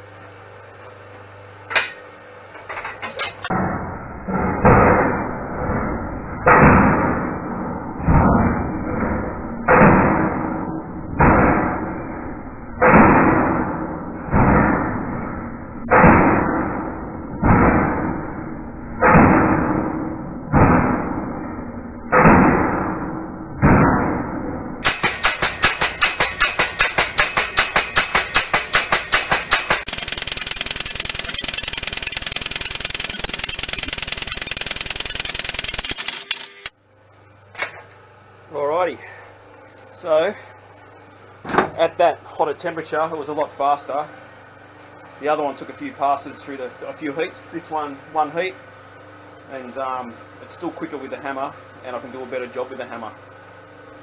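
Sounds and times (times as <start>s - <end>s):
power hammer pounding steel: 2.8s - 21.4s, 22.1s - 36.7s.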